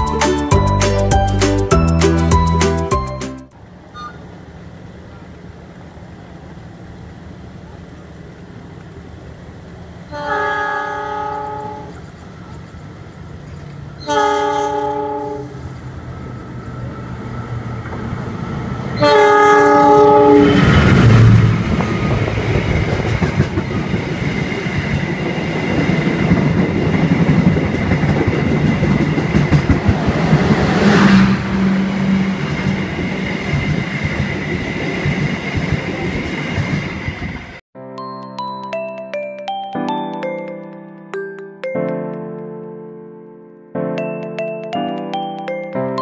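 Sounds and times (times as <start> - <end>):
locomotive engine rumble: 3.5 - 37.6
train horn blasts: 10.1 - 12.0, 14.0 - 15.7, 19.0 - 20.9
wheel clatter over rail joints: 20.6 - 31.0.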